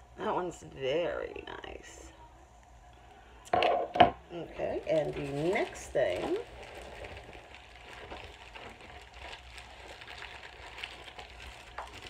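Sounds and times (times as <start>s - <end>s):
low room hum: 0.0s - 12.0s
packaging rustling: 4.7s - 12.0s.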